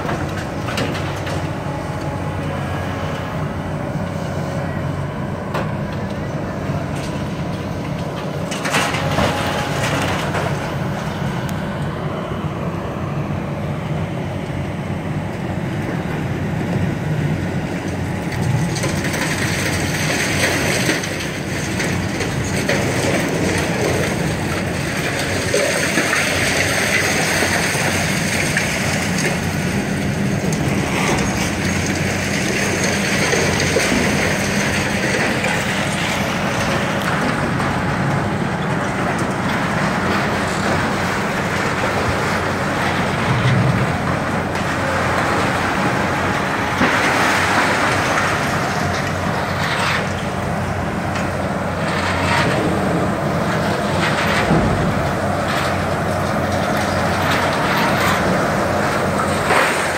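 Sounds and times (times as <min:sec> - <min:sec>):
excavator engines running: 0:00.0 - 0:59.9
debris grinding and crunching: 0:17.7 - 0:59.9.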